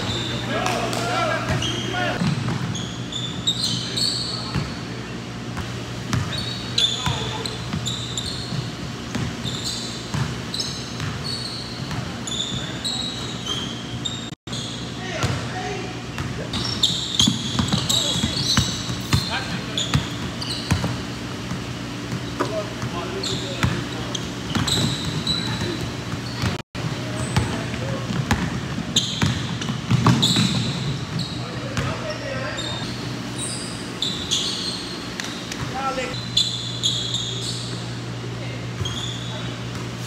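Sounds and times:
sneaker squeaks: 0:00.0 - 0:40.0
basketball dribbling: 0:07.0 - 0:13.4, 0:16.2 - 0:32.0
basketball bouncing on wooden floor: 0:10.1 - 0:10.4, 0:27.4 - 0:30.9.

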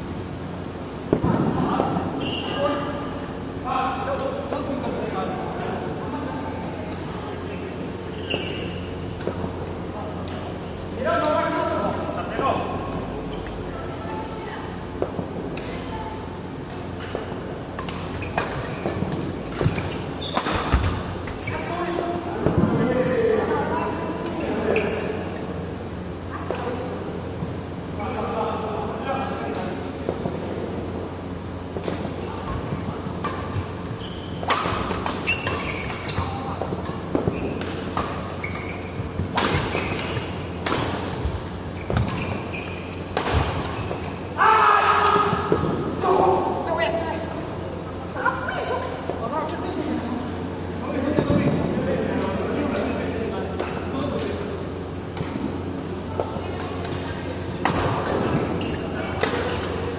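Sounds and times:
shoes squeaking on court floor: 0:02.1 - 0:03.0, 0:05.6 - 0:12.0, 0:16.6 - 0:22.3, 0:23.1 - 0:25.7, 0:31.2 - 0:44.4, 0:52.7 - 0:59.9
shoe squeaks on court: 0:02.2 - 0:02.8, 0:08.1 - 0:09.2, 0:18.0 - 0:21.8, 0:34.0 - 0:36.7, 0:37.3 - 0:44.2, 0:58.2 - 0:59.8.

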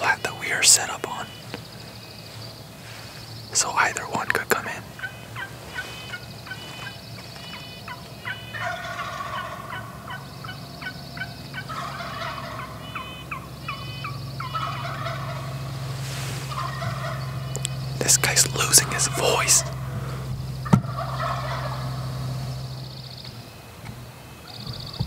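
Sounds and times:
turkey gobbling hoarsely: 0:03.7 - 0:23.0.

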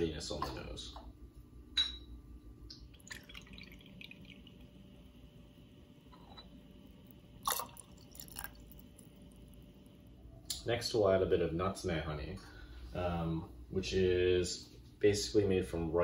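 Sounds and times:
liquid trickling and splashing: 0:02.8 - 0:04.7, 0:07.4 - 0:09.1.

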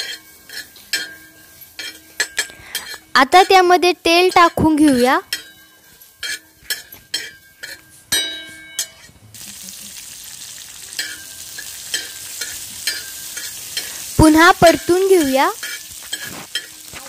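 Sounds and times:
metal spatula scraping griddle: 0:00.0 - 0:03.6, 0:05.3 - 0:08.1, 0:10.9 - 0:14.2, 0:14.9 - 0:17.0
sizzle of frying: 0:00.0 - 0:08.2, 0:08.8 - 0:17.0.

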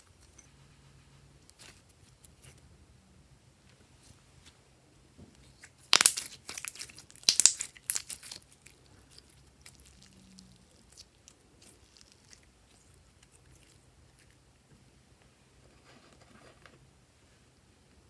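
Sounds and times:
slime crackling and popping: 0:05.5 - 0:13.7.

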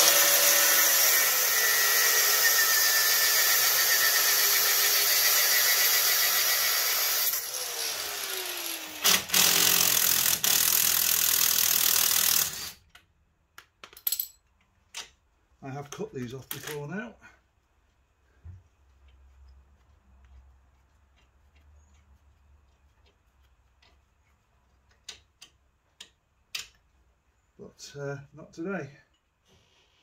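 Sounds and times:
angle grinder cutting metal: 0:00.0 - 0:12.8
cordless power tool running: 0:00.0 - 0:12.8.

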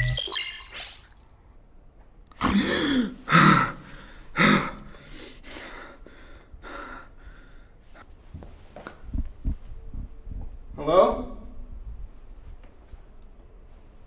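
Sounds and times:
man gasping and panting: 0:02.4 - 0:07.8.

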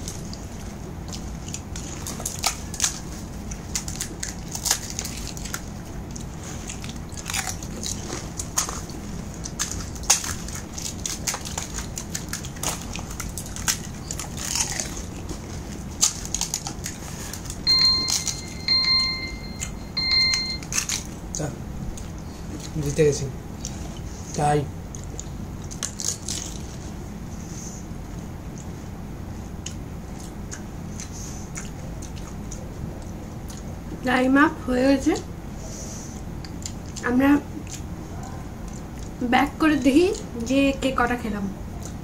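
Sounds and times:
crisp shells cracking and crunching: 0:00.0 - 0:18.6, 0:20.5 - 0:22.9, 0:24.9 - 0:26.8
electronic timer beeping: 0:17.6 - 0:20.7.

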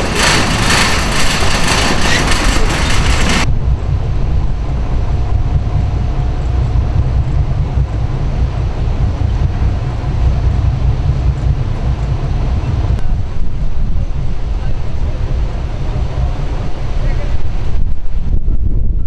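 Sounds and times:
loud broadband noise: 0:00.0 - 0:18.7
wind buffeting microphone: 0:00.0 - 0:19.0.

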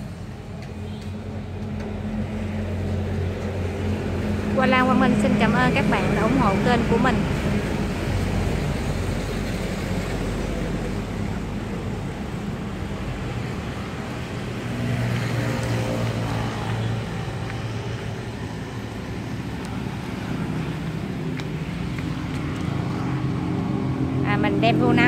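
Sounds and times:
motor vehicle engines rumbling: 0:00.0 - 0:25.0.

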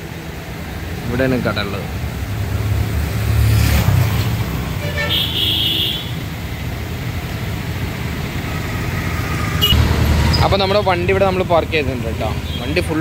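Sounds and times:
road traffic rumble: 0:00.0 - 0:13.0
vehicle horn toot: 0:04.8 - 0:06.2.

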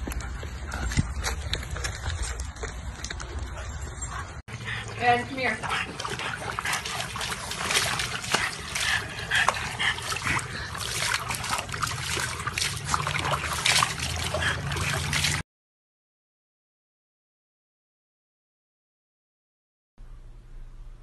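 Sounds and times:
water splashing in a tub: 0:04.8 - 0:15.4
water spilling onto ground: 0:05.7 - 0:15.4.

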